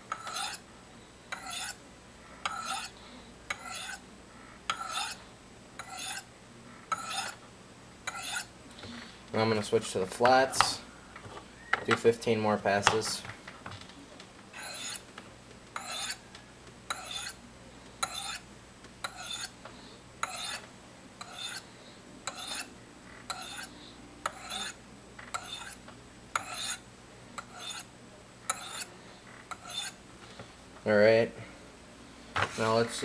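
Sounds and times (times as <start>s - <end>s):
knife scraping on ceramic rods: 0.1s - 0.6s, 1.3s - 1.8s, 2.4s - 4.0s, 4.7s - 5.2s, 5.8s - 6.3s, 6.9s - 7.4s, 8.0s - 8.5s, 14.5s - 15.0s, 15.8s - 16.3s, 16.9s - 17.4s, 18.0s - 18.4s, 19.0s - 19.6s, 20.2s - 22.7s, 23.3s - 25.8s, 26.4s - 26.8s, 27.4s - 27.9s, 28.5s - 30.0s.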